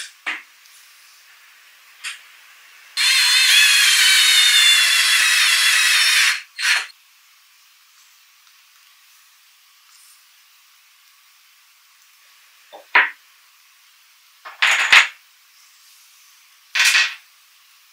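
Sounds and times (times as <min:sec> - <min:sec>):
cordless drill whine: 0:03.0 - 0:06.9.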